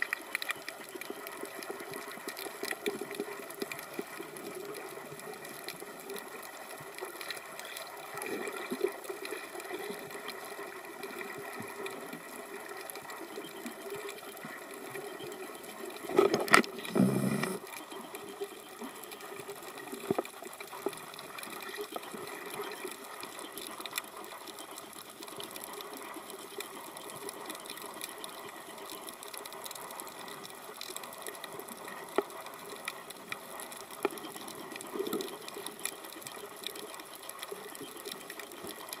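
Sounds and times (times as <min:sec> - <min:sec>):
faint crackling: 0:00.0 - 0:39.0
low underwater hum: 0:00.0 - 0:39.0.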